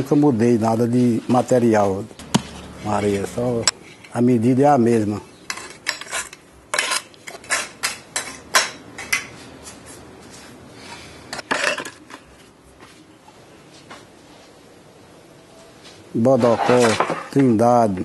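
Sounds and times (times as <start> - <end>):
metal scraping and clinking: 2.2 - 4.4, 5.5 - 9.8, 16.4 - 17.4.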